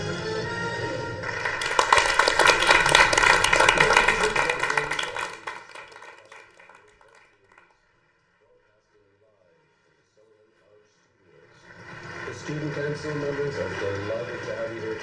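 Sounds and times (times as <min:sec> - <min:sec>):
theme music: 0:00.0 - 0:05.5
small group clapping: 0:01.2 - 0:07.8, 0:11.6 - 0:15.0.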